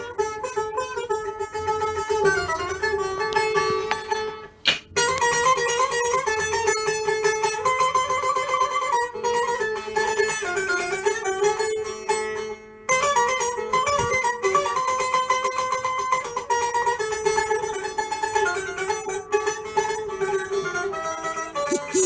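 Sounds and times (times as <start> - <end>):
long-necked lute plucked melody: 0.0 - 22.0.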